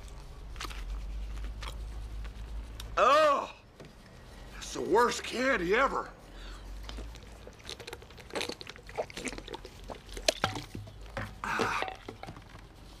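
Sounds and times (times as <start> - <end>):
person crunching a snack: 0.0 - 1.8, 6.9 - 10.4
snack bag rustling: 0.0 - 1.8, 6.9 - 10.4.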